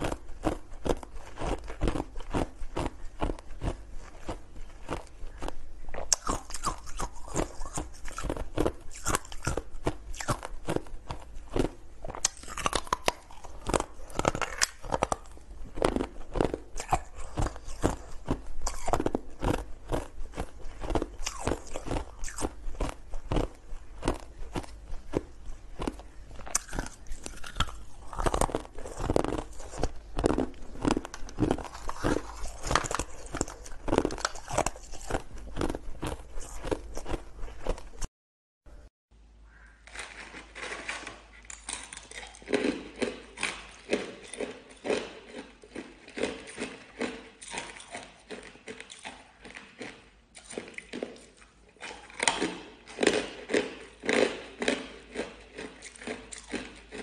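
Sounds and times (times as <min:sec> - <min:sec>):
ice being crunched by teeth: 0:00.0 - 0:37.8.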